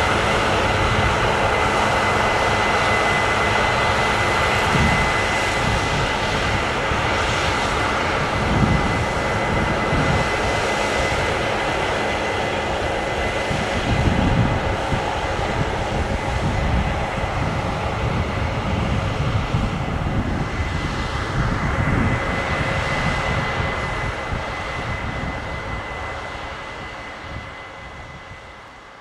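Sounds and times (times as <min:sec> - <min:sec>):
combine harvester drone: 0:00.0 - 0:29.0
high machinery whine: 0:00.0 - 0:29.0.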